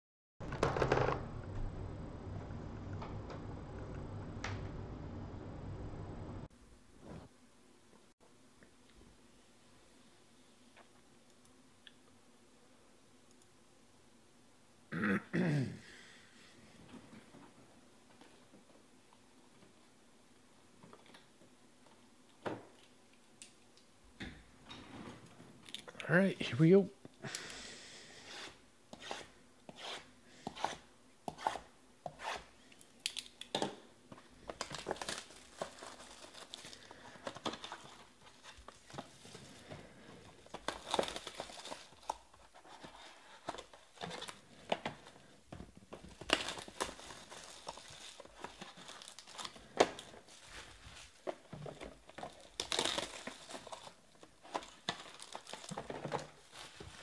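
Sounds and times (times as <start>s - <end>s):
plastic wrap crinkling: 34.2s - 45.2s, 45.9s - 57.0s
plastic wrap tearing: 34.4s - 38.9s, 40.5s - 42.3s, 46.1s - 57.0s.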